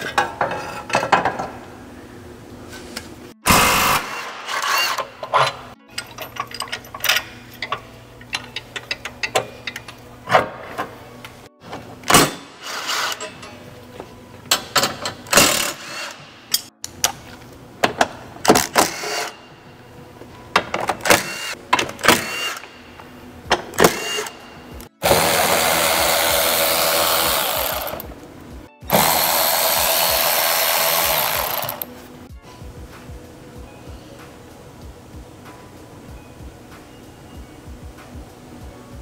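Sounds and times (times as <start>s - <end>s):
background music: 3.3s - 39.0s
cordless power tool running: 25.0s - 28.1s, 28.9s - 31.9s.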